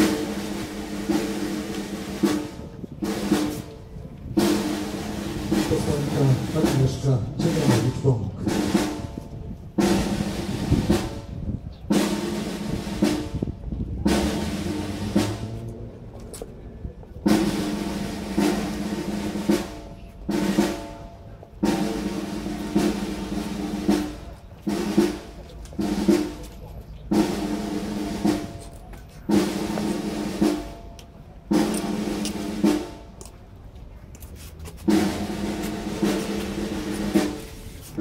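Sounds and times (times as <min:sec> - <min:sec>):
snare drum rolls: 0:11.9 - 0:15.7, 0:31.5 - 0:33.1, 0:34.8 - 0:38.0.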